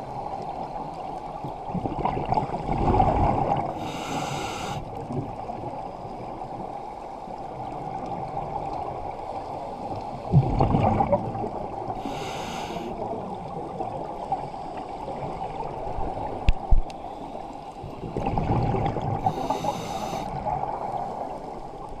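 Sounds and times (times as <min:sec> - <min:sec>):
steady underwater hum: 0:00.0 - 0:22.0
regulator hissing inhale: 0:03.8 - 0:04.9, 0:12.0 - 0:13.0, 0:17.0 - 0:18.0, 0:19.2 - 0:20.4
bubbling exhale underwater: 0:10.3 - 0:12.2, 0:18.2 - 0:20.8.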